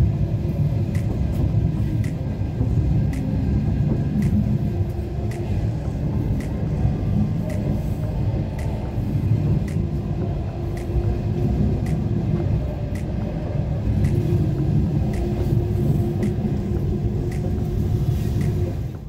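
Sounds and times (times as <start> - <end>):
train wheels rumbling on rails: 0.0 - 19.0
faint ticks: 2.0 - 2.4, 6.3 - 9.0, 13.9 - 14.4, 15.0 - 18.8.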